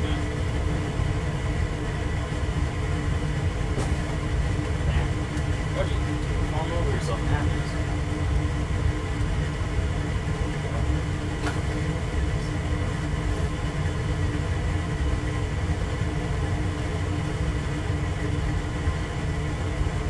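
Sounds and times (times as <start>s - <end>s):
low rumble and hum: 0.0s - 20.0s.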